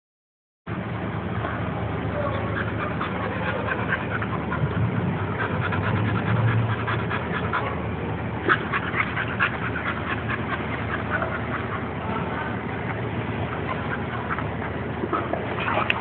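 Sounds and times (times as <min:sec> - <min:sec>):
dogs yipping and squeaking: 0:02.2 - 0:16.0.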